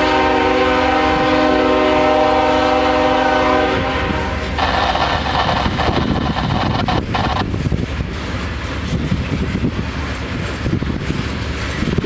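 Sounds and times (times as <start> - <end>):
locomotive air horn: 0.0 - 4.8
train rattling on rails: 0.0 - 12.0.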